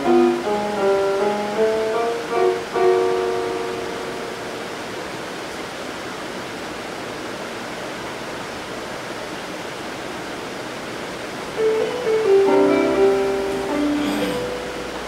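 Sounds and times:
steady rushing noise: 0:00.0 - 0:15.0.

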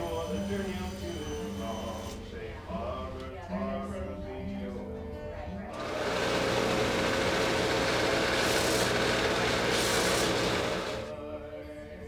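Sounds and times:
belt sander humming: 0:05.8 - 0:11.1
wood grinding on sander belt: 0:05.8 - 0:11.1.

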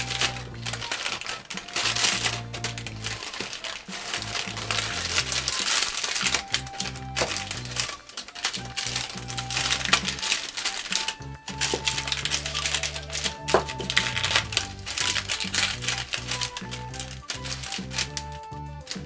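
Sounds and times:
background music: 0:00.0 - 0:19.0
parchment paper crinkling: 0:00.0 - 0:19.0
wooden spatula clicking and scraping: 0:00.0 - 0:19.0.

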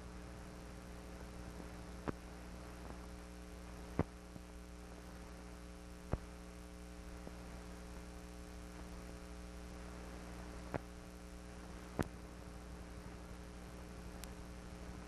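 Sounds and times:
low electrical hum with hiss: 0:00.0 - 0:15.0.

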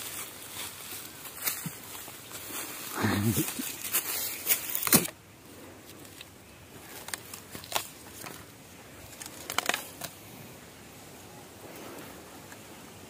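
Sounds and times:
dry bamboo crackling and snapping: 0:00.0 - 0:05.2, 0:05.8 - 0:10.2.

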